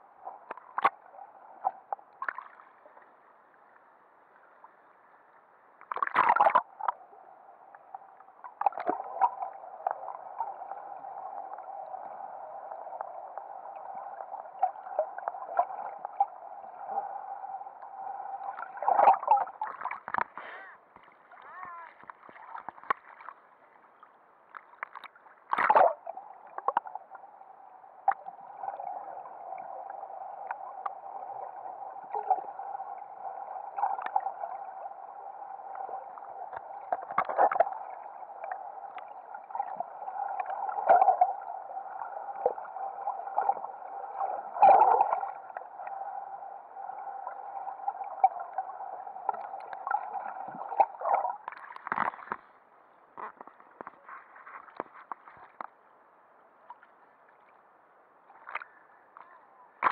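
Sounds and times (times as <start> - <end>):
muffled underwater hum with gurgling: 6.3 - 21.9, 25.6 - 52.1.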